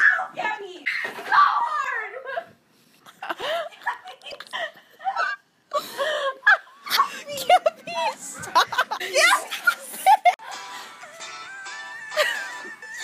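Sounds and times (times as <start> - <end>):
girls laughing and squealing: 3.2 - 10.5.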